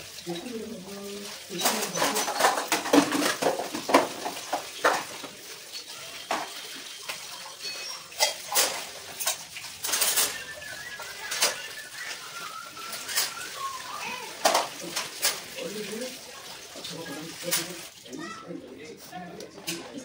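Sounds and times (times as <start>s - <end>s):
metal dishes clinking: 1.3s - 13.4s, 14.3s - 16.0s.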